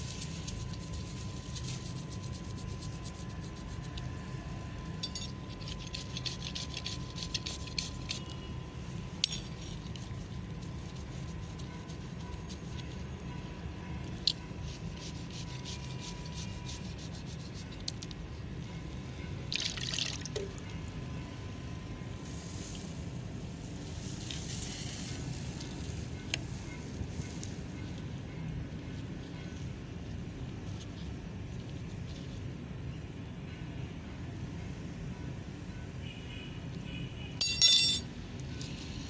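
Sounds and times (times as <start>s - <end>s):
toothbrush scrubbing metal spoon: 0.0s - 4.1s, 5.6s - 8.4s, 9.3s - 12.9s, 14.6s - 18.0s
steady low hum: 0.0s - 19.7s
water poured into plastic cup: 19.5s - 20.5s.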